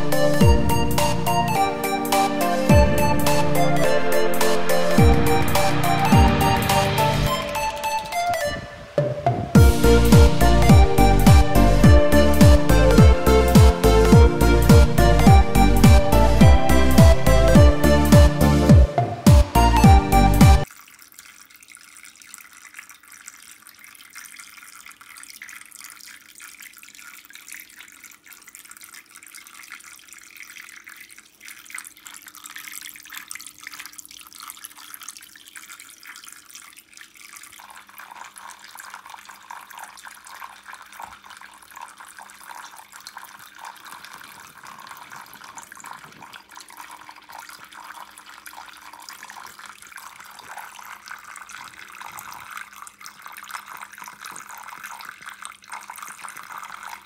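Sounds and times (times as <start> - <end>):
water splashing into fountain basin: 20.6 - 57.0.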